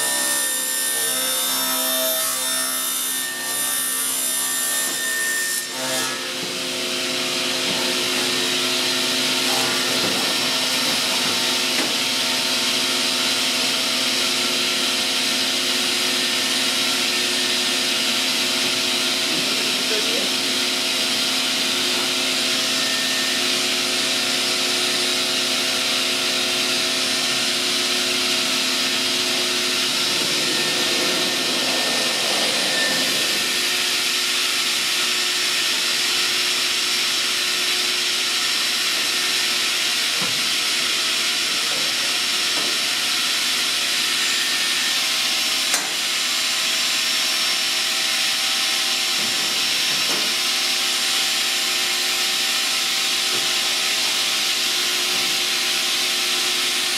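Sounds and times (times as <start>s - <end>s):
saw machine hum: 0.0s - 56.9s
dust extraction air rush: 26.7s - 35.8s.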